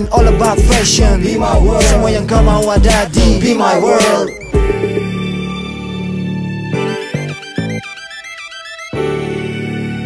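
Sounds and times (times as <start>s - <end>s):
music: 0.0s - 10.0s
low musical hits: 4.4s - 6.1s.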